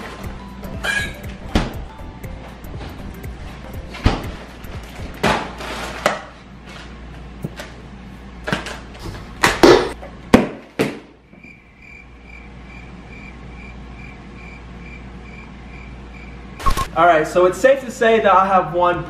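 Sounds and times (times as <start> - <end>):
cricket chirping: 11.4 - 16.9
sharp hits and whooshes: 16.6 - 16.9.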